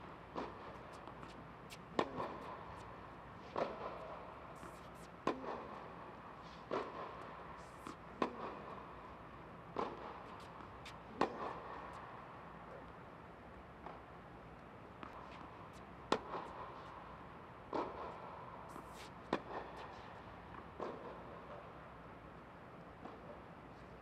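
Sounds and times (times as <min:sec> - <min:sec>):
tennis ball hit by racket: 0:00.3 - 0:08.9, 0:09.7 - 0:12.0, 0:15.0 - 0:16.9.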